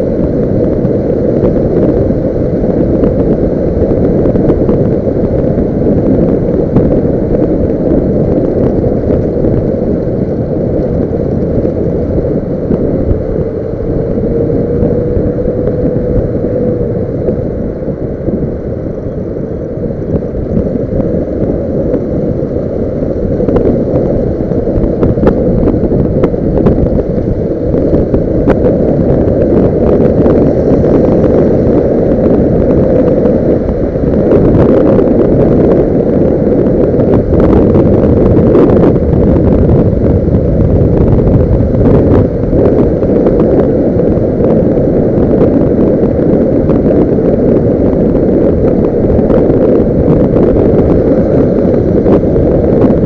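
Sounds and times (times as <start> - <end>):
road noise: 0.0 - 53.0
wind buffeting microphone: 0.0 - 53.0
motorcycle engine: 9.9 - 18.0.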